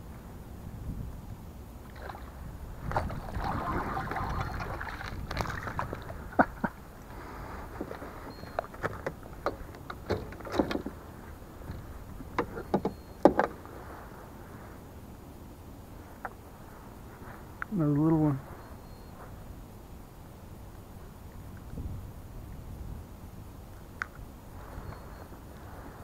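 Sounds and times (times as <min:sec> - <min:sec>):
water sloshing and splashing: 0:01.8 - 0:06.7.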